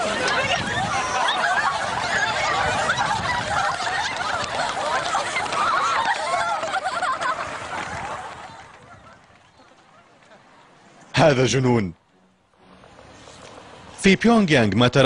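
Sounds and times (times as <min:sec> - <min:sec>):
crowd of high voices: 0:00.0 - 0:11.1.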